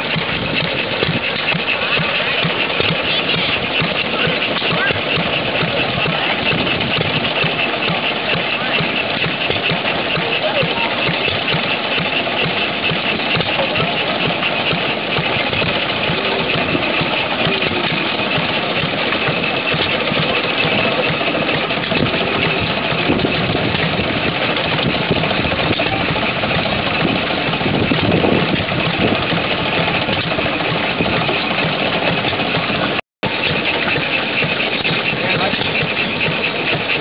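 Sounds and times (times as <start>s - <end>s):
old gasoline engines running: 0.0s - 37.0s.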